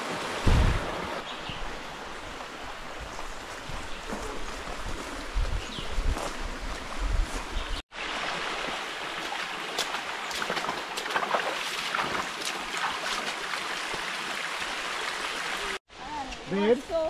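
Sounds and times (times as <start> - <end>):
stream running over rocks: 0.0 - 17.0
feet splashing in water: 8.6 - 13.7.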